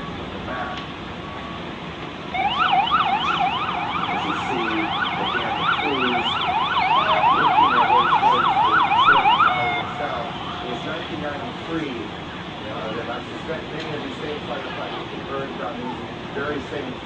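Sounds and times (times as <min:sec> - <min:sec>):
emergency siren yelping: 0:02.3 - 0:11.1.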